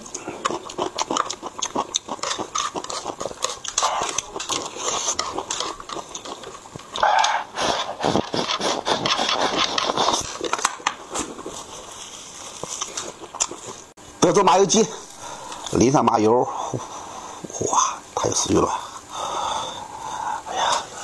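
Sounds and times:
slurping noodles: 0:00.0 - 0:13.9
wet chewing and crunching: 0:00.0 - 0:14.0.

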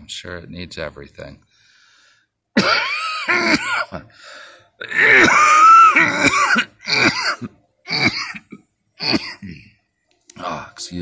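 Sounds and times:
man wheezing cough: 0:02.6 - 0:04.2, 0:04.8 - 0:09.8.

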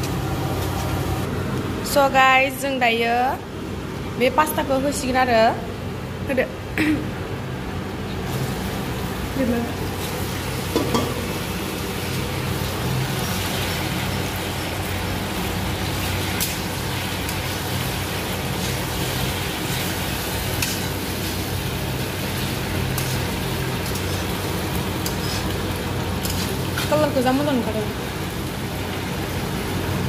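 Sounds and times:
steady low hum: 0:00.0 - 0:30.0
pasta sizzling in oil: 0:08.2 - 0:30.0.

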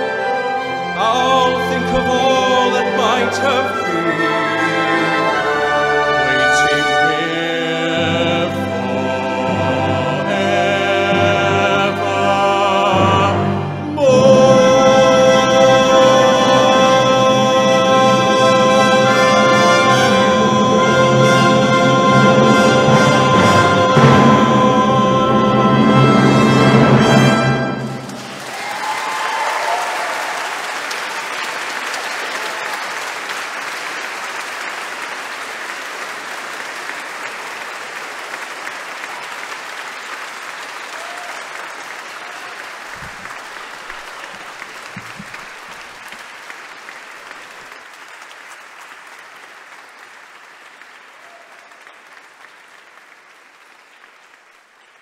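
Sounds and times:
orchestra playing: 0:00.0 - 0:28.7
audience applauding: 0:26.7 - 0:55.0.

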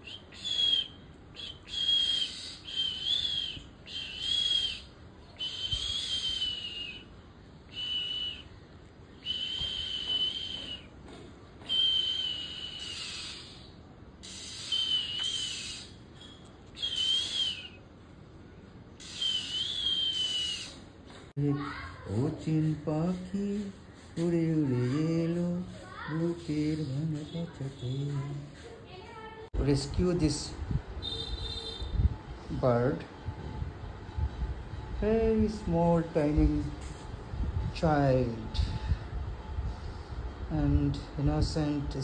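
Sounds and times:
young bird calling: 0:00.0 - 0:06.9, 0:11.8 - 0:17.7, 0:19.0 - 0:20.8.

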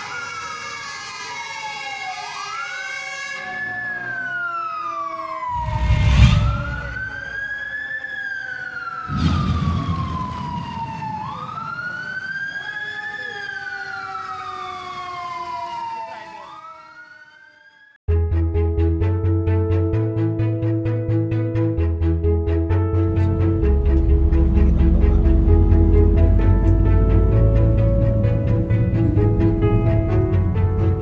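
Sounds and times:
emergency siren wailing: 0:00.0 - 0:18.0, 0:22.2 - 0:31.0
lower siren tone: 0:00.0 - 0:18.0, 0:22.9 - 0:30.9
deep rumbling whooshes: 0:05.5 - 0:07.4, 0:09.1 - 0:10.9, 0:23.4 - 0:31.0.

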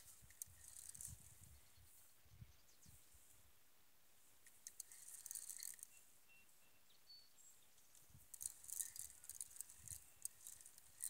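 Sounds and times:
quick high-pitched clicking and rattling: 0:00.0 - 0:01.5, 0:04.4 - 0:06.0, 0:07.9 - 0:11.0
faint chirps: 0:04.6 - 0:11.0.

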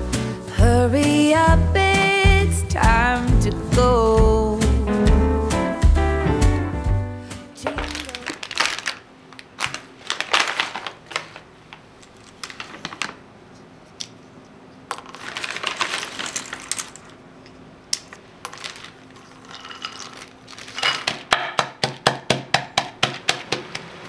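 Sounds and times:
rustling: 0:07.6 - 0:14.0, 0:14.8 - 0:17.2, 0:18.4 - 0:21.2
shells clicking into bowl: 0:14.9 - 0:21.0.

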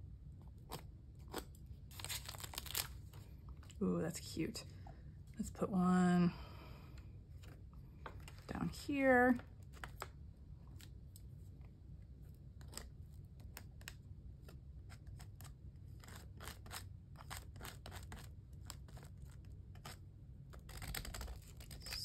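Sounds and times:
palette knife scraping paper: 0:14.8 - 0:20.0.

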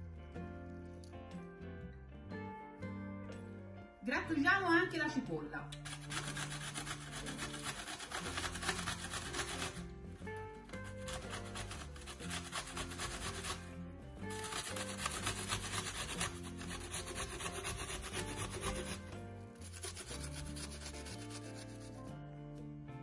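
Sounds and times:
onion grated on metal grater: 0:05.8 - 0:22.0.

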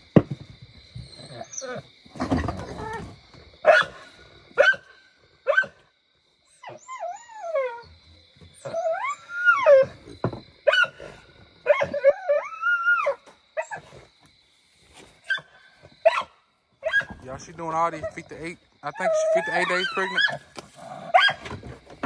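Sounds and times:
dog whining: 0:01.0 - 0:01.9, 0:06.5 - 0:10.1, 0:11.6 - 0:13.8, 0:18.9 - 0:20.5, 0:21.1 - 0:21.6
dog barking: 0:03.6 - 0:05.8, 0:15.3 - 0:17.2, 0:21.1 - 0:21.4.

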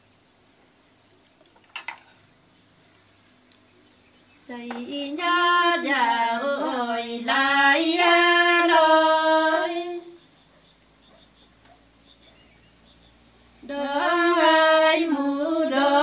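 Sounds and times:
woman singing unaccompanied: 0:04.4 - 0:10.2, 0:13.6 - 0:16.0.

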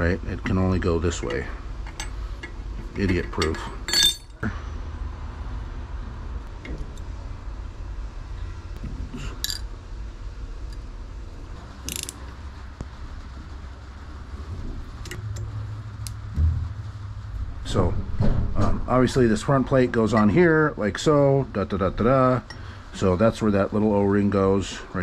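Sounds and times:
steady low hum: 0:00.0 - 0:25.0
metallic clicks of pump parts: 0:01.2 - 0:04.4, 0:11.8 - 0:12.3.

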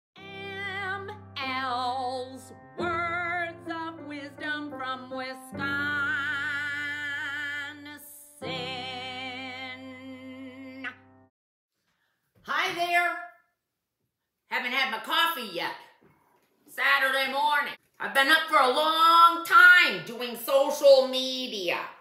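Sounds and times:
woman singing long notes: 0:00.2 - 0:11.0.

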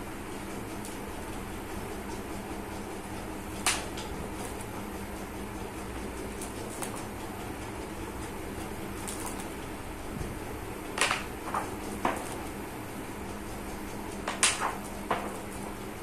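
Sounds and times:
steady low hum: 0:00.0 - 0:16.0
photo album pages flipping: 0:08.6 - 0:09.5.

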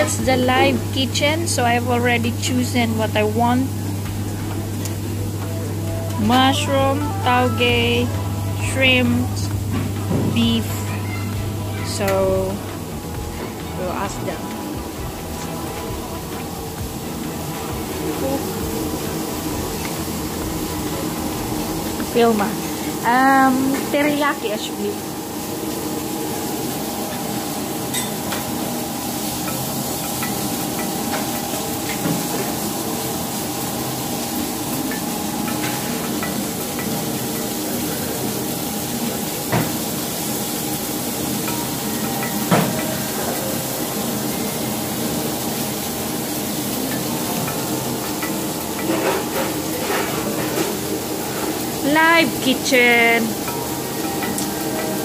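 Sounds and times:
food sizzling on griddle: 0:00.0 - 0:55.0
steady hum: 0:00.0 - 0:55.0
metal utensils clanking: 0:26.3 - 0:55.0.

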